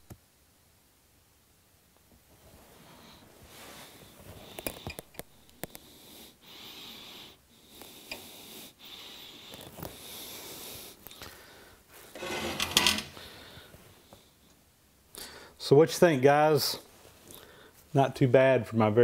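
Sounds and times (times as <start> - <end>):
person breathing slowly: 2.7 - 12.4, 13.0 - 14.5, 15.1 - 15.6, 17.3 - 17.9
rattling handling noise: 12.2 - 13.2.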